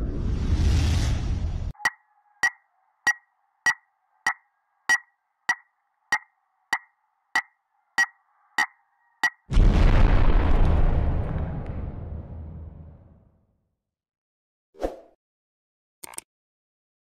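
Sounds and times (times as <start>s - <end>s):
two-toned electronic blip: 1.8s - 9.4s.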